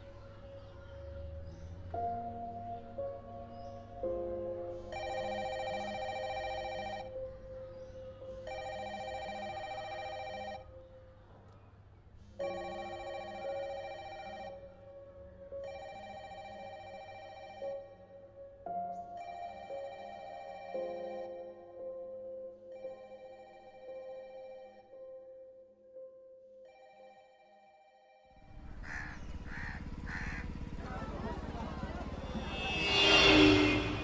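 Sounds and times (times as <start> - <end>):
background music: 0.0 - 11.2, 12.4 - 27.7
phone ringtone ringing: 4.9 - 7.3, 8.4 - 10.8, 12.4 - 14.9, 15.6 - 18.2, 19.2 - 21.8, 22.6 - 25.1, 26.6 - 28.4.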